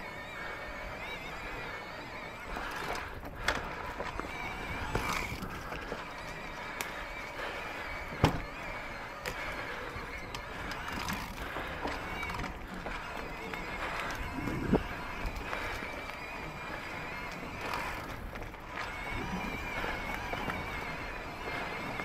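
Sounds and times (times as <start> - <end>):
bike tyre and chassis rattle: 0.0 - 22.0
sharp knocks over bumps: 2.5 - 22.0.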